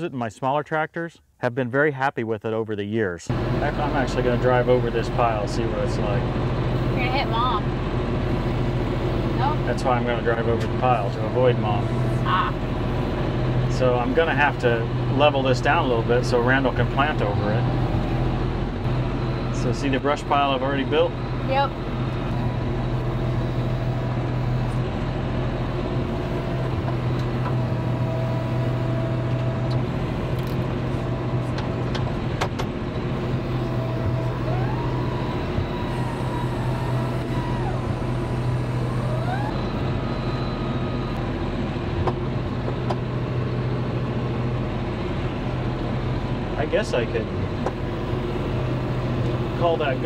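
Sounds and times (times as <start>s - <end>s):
tractor diesel engine running: 3.3s - 50.0s
faint whine: 13.7s - 24.8s, 33.2s - 41.3s.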